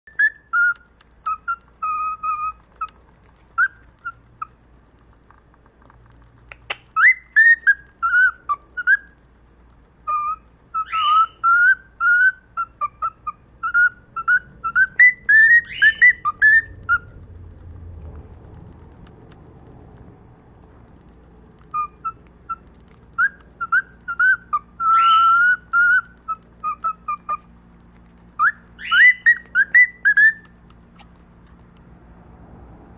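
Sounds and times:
cockatiel whistling: 0:00.1 - 0:04.6, 0:06.5 - 0:09.2, 0:10.0 - 0:17.3, 0:21.6 - 0:27.5, 0:28.4 - 0:31.1.

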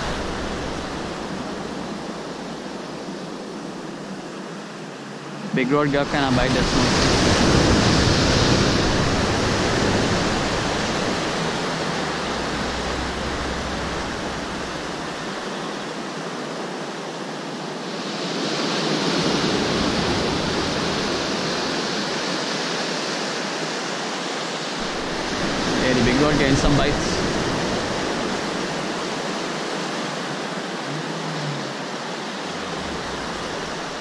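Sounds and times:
ocean surf breaking: 0:00.0 - 0:34.0.

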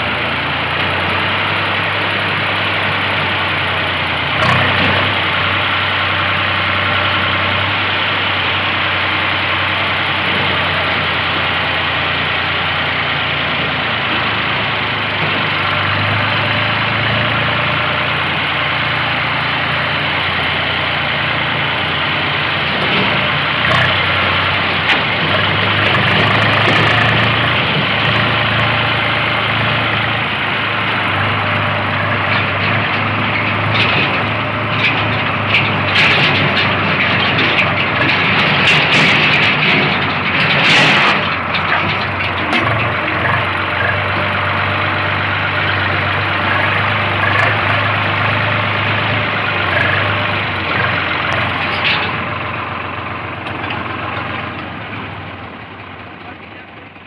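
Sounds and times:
tractor diesel engine running: 0:00.0 - 0:57.0
clicks and rattles: 0:32.3 - 0:44.7, 0:49.5 - 0:55.2.

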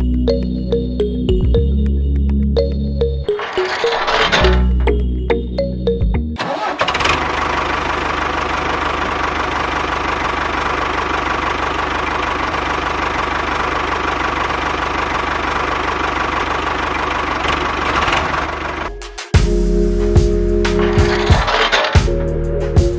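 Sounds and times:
tractor engine chugging: 0:03.3 - 0:05.0, 0:06.4 - 0:19.0, 0:20.8 - 0:22.1.

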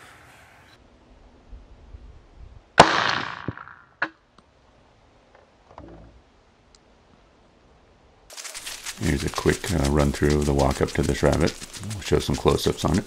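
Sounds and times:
rifle shot: 0:02.8 - 0:03.8.

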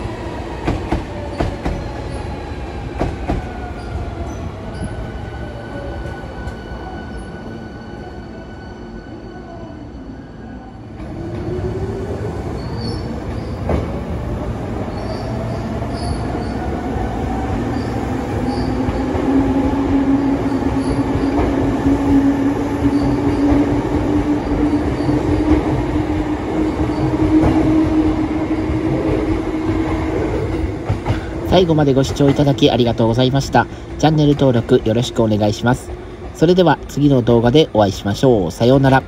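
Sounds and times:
wheels rumbling on rails: 0:17.3 - 0:39.0.

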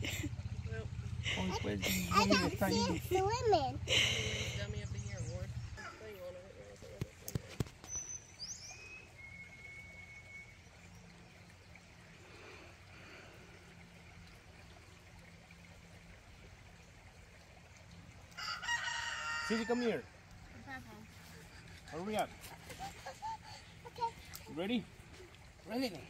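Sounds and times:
bird chirp: 0:07.8 - 0:11.8
thin whistle: 0:08.1 - 0:10.8
rooster crowing: 0:18.4 - 0:20.0.

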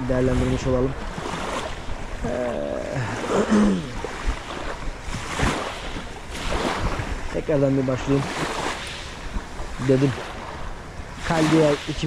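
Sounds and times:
man's voice: 0:00.0 - 0:01.0, 0:02.2 - 0:03.9, 0:07.4 - 0:08.3, 0:11.3 - 0:12.0
wind noise on microphone: 0:00.0 - 0:12.0
small waves on pebble shore: 0:00.1 - 0:12.0.

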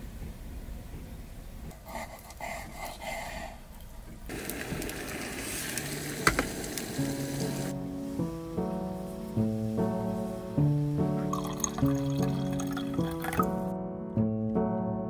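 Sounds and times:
food sizzling: 0:04.3 - 0:13.6.

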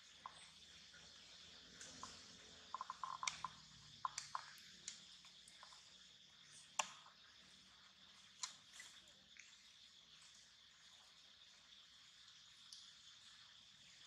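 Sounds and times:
steady high hiss: 0:00.0 - 0:08.6.

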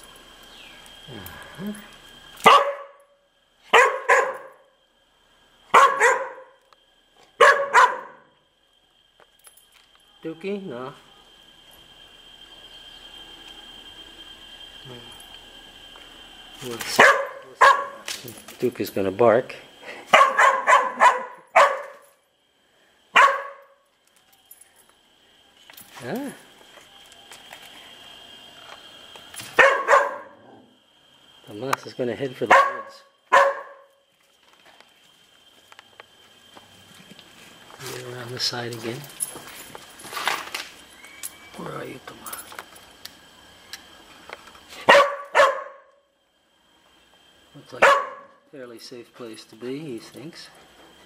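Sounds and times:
dog barking: 0:02.4 - 0:03.0, 0:03.7 - 0:04.6, 0:05.7 - 0:06.6, 0:07.4 - 0:08.3, 0:17.0 - 0:18.0, 0:20.1 - 0:22.0, 0:23.1 - 0:23.8, 0:29.6 - 0:30.4, 0:32.5 - 0:33.9, 0:44.9 - 0:45.9, 0:47.8 - 0:48.4.

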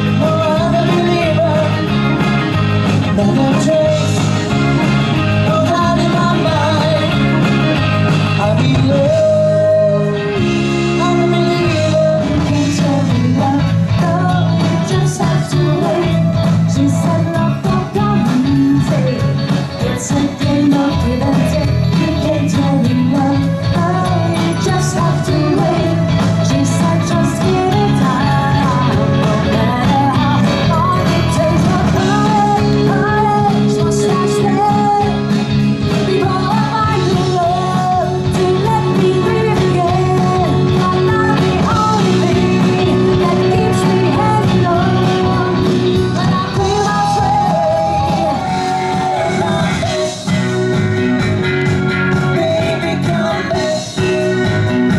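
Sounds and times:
drums: 0:00.0 - 0:54.9
electric guitar: 0:00.0 - 0:54.9
woman singing into a microphone: 0:08.4 - 0:50.3, 0:52.2 - 0:54.2.

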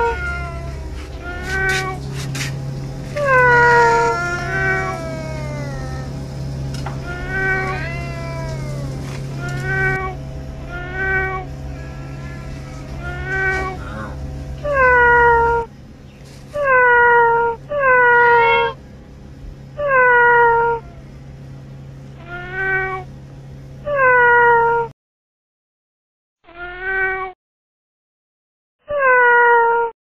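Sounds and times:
cat meowing: 0:00.0 - 0:02.0, 0:03.1 - 0:06.2, 0:07.0 - 0:15.7, 0:16.6 - 0:18.8, 0:19.8 - 0:21.0, 0:22.2 - 0:23.1, 0:23.9 - 0:24.9, 0:26.5 - 0:27.4, 0:28.9 - 0:29.9
steady low hum: 0:00.0 - 0:24.9.

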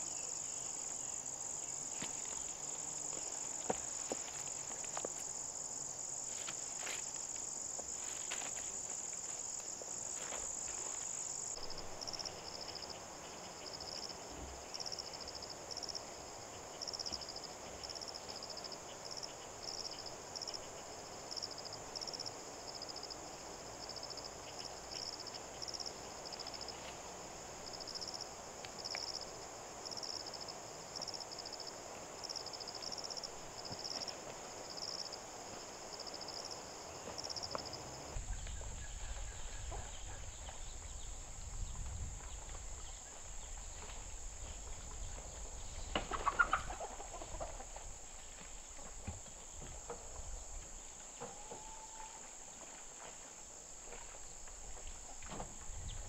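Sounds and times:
chicken calling: 0:46.1 - 0:47.6.

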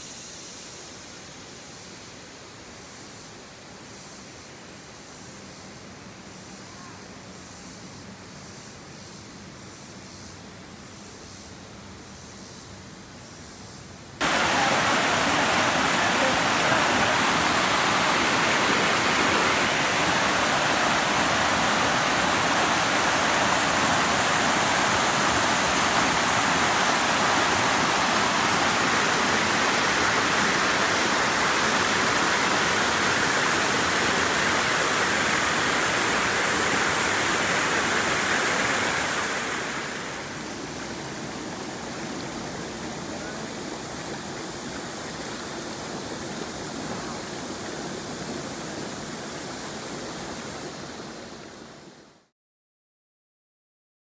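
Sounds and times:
water spilling over dam: 0:14.2 - 0:51.1
stream rushing over rocks: 0:14.2 - 0:51.9.

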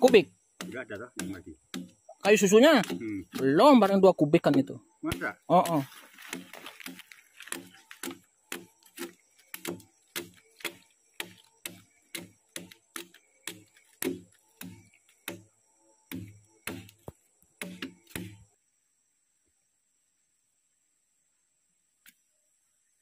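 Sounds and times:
machete chopping wood: 0:00.0 - 0:15.5, 0:16.1 - 0:18.5.

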